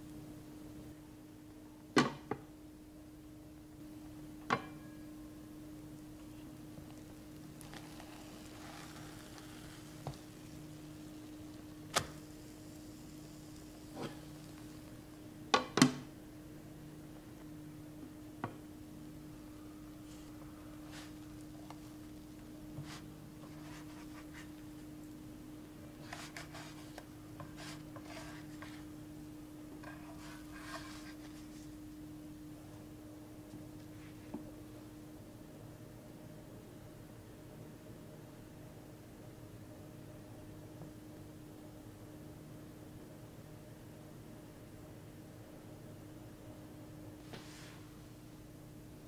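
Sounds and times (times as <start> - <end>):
steady low hum: 0.0 - 49.0
pancakes sizzling in a pan: 7.6 - 15.0
spatula scraping frying pan: 29.8 - 31.2.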